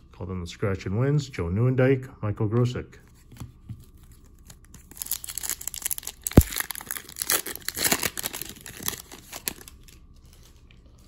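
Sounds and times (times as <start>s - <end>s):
foil wrapper tearing and crinkling: 4.4s - 11.0s.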